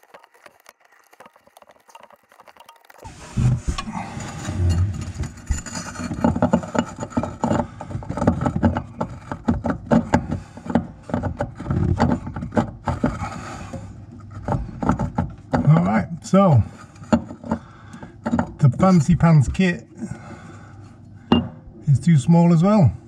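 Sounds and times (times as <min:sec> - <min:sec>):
metal spanner knocking and scraping: 0:01.9 - 0:16.0, 0:16.6 - 0:19.6
tool handling thumps: 0:21.3 - 0:21.8.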